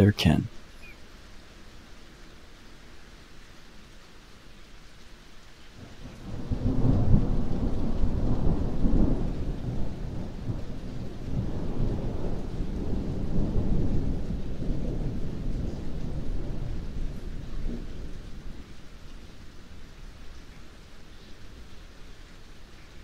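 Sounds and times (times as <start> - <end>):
rain falling: 0.0 - 23.0
thunder rumbling: 6.2 - 10.7.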